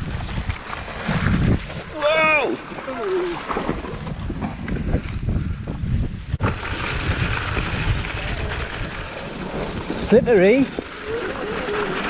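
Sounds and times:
bike tyres rumbling on trail: 0:00.0 - 0:12.0
wind buffeting microphone: 0:00.0 - 0:12.0
bike rattling over bumps: 0:03.7 - 0:12.0.

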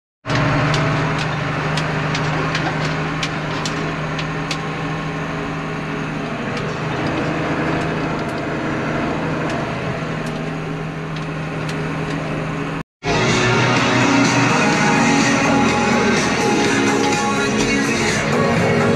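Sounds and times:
tractor engine running: 0:00.2 - 0:18.9.

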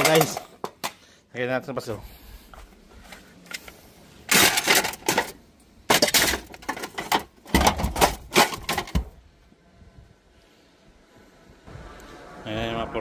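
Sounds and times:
metal tools and cookware clattering: 0:00.0 - 0:01.0, 0:04.3 - 0:09.0.

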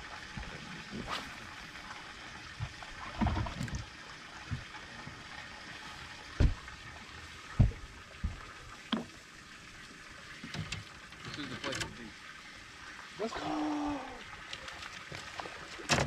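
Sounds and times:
water lapping against boat: 0:00.0 - 0:16.0
dull knocks: 0:06.4 - 0:06.6, 0:07.6 - 0:08.5.

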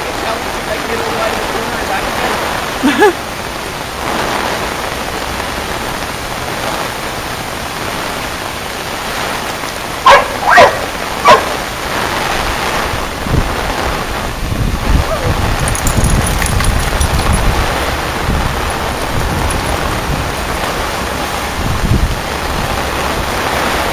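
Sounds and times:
heavy rain pouring onto water: 0:00.0 - 0:23.9
dog barking: 0:10.0 - 0:11.6.

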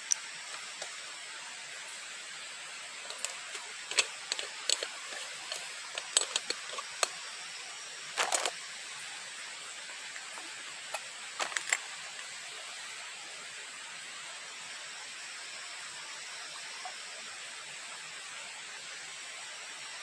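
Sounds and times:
steady hiss: 0:00.0 - 0:20.0
sharp clicks and snaps: 0:03.1 - 0:07.2.

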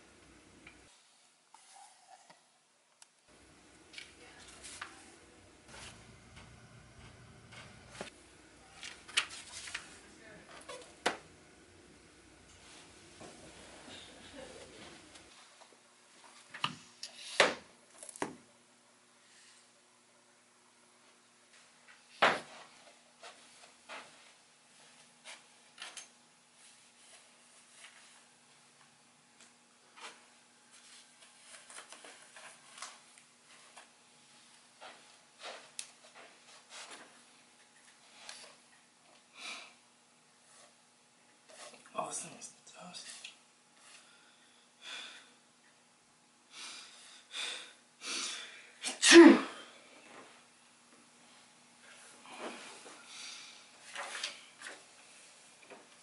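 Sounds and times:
man sneezing: 0:48.2 - 0:49.7.

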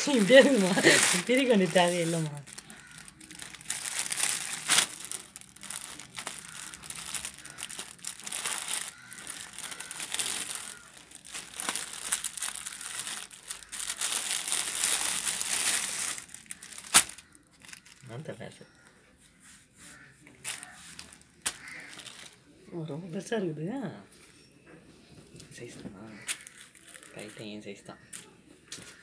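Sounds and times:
plastic bag crinkling: 0:00.0 - 0:18.1, 0:20.4 - 0:22.4, 0:26.2 - 0:27.6
sharp crack: 0:11.3 - 0:17.3.

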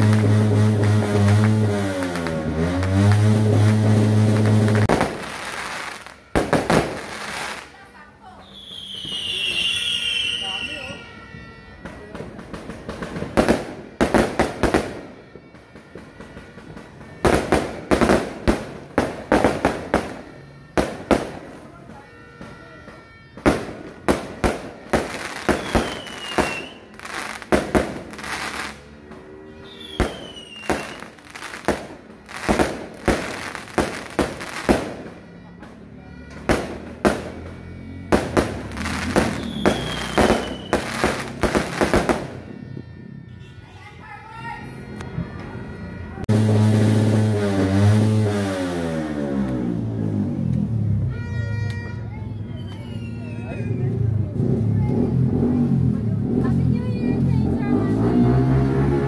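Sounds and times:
fireworks exploding: 0:00.0 - 0:11.0, 0:12.2 - 0:21.6, 0:22.5 - 0:42.6, 0:46.3 - 0:50.1
high falling whistle: 0:39.3 - 0:40.9.

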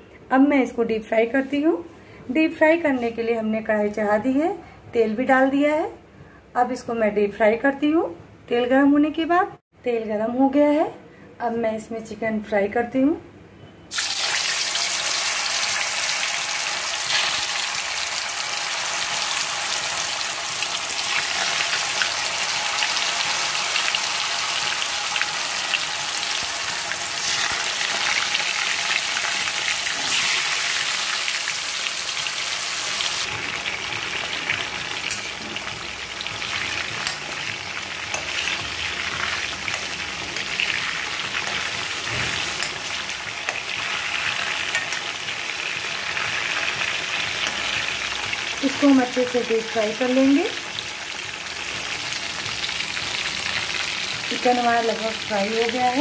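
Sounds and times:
chicken deep-frying in hot oil: 0:13.9 - 0:56.0.

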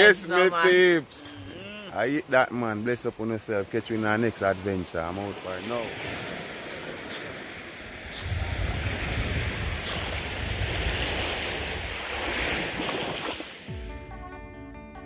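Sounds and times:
sea surf washing on shore: 0:02.2 - 0:13.7
wind rumbling on microphone: 0:06.0 - 0:13.3
plucked guitar music: 0:13.7 - 0:15.0.

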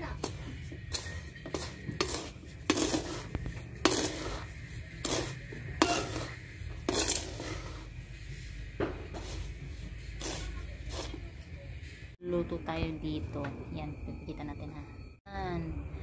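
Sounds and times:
spatula scraping a pan: 0:00.0 - 0:11.4
rice grains shifting: 0:00.7 - 0:11.2.

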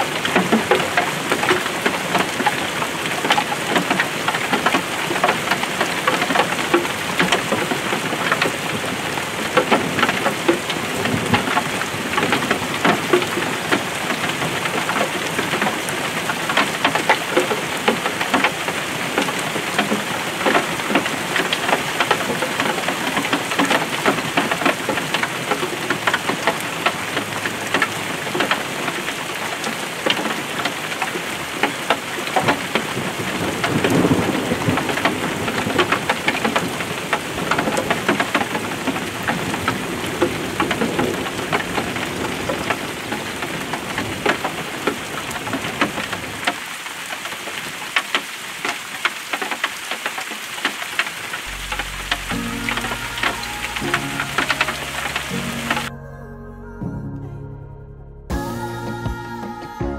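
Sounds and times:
rain pattering: 0:00.0 - 0:55.9
low rumbles: 0:51.5 - 0:59.5.

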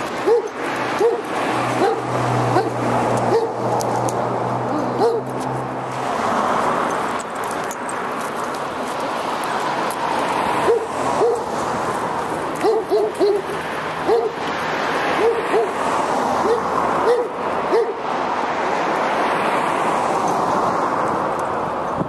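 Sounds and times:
dog barking: 0:00.2 - 0:03.6, 0:04.7 - 0:05.4, 0:10.6 - 0:11.5, 0:12.6 - 0:14.4, 0:15.2 - 0:15.8, 0:16.4 - 0:18.0.

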